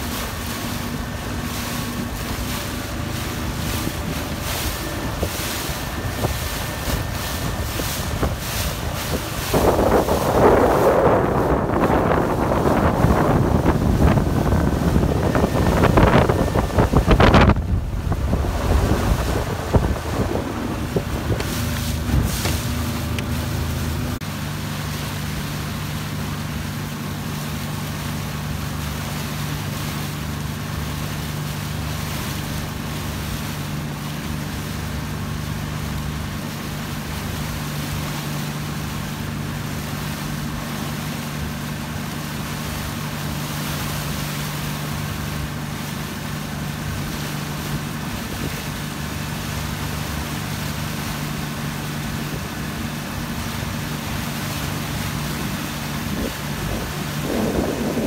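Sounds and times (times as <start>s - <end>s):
motorboat engine humming: 0.0s - 58.0s
water rushing: 0.0s - 58.0s
wind rushing: 4.2s - 24.2s, 56.1s - 58.0s.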